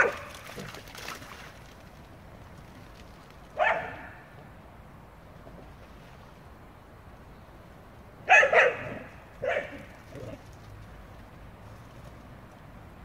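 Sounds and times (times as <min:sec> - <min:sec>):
dog barking: 0:00.0 - 0:00.3, 0:03.6 - 0:04.1, 0:08.3 - 0:09.8.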